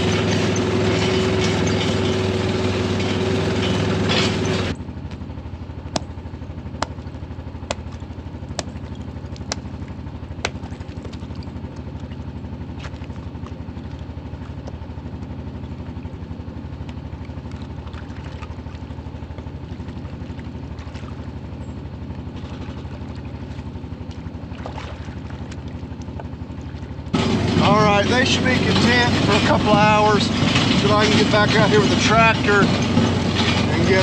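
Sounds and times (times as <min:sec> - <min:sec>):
vehicle engine running: 0:00.0 - 0:34.0
sharp knocks or clanks: 0:27.1 - 0:34.0.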